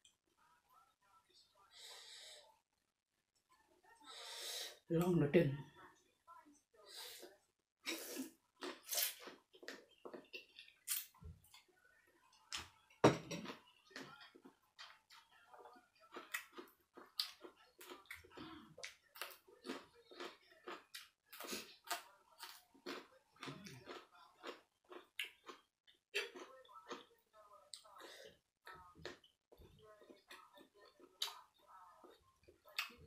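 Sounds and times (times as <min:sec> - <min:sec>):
noodles slurped and chewed: 0:07.2 - 0:11.7, 0:16.0 - 0:33.0.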